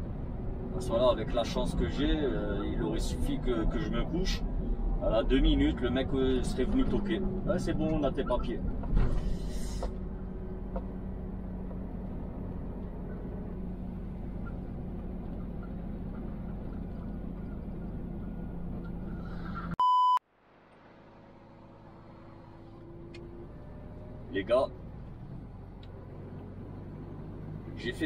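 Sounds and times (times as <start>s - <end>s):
truck diesel engine humming: 0.0s - 19.8s, 20.4s - 28.0s
loud electronic beep: 19.8s - 20.2s.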